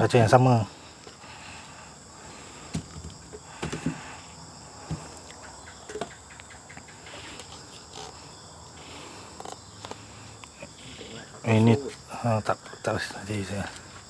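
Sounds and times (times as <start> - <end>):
high drone of insects: 0.0 - 14.0
plastic bottles knocking: 2.7 - 4.1.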